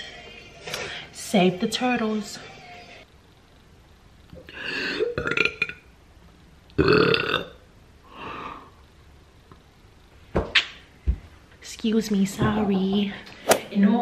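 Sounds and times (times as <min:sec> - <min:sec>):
woman burping: 0:04.9 - 0:05.8, 0:06.8 - 0:07.6.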